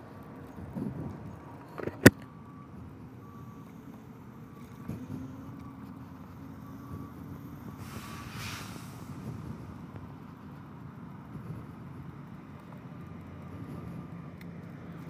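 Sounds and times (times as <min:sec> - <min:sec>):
scooter wheels rumbling on asphalt: 0:00.0 - 0:15.0
faint short beeps: 0:01.6 - 0:08.7.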